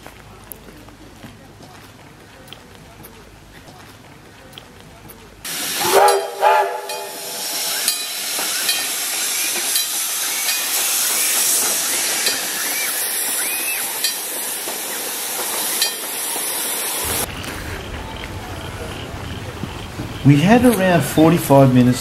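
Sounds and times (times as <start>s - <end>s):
steam locomotive whistle toots: 5.5s - 19.8s
loud hiss of escaping steam: 5.5s - 21.7s.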